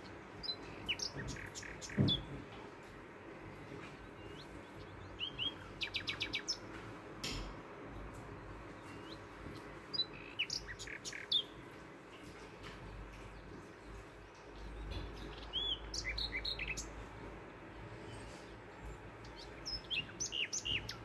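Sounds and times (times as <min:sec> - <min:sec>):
small bird chirping: 0:00.4 - 0:02.4, 0:04.1 - 0:06.7, 0:08.8 - 0:11.6, 0:14.4 - 0:17.0, 0:19.2 - 0:21.0.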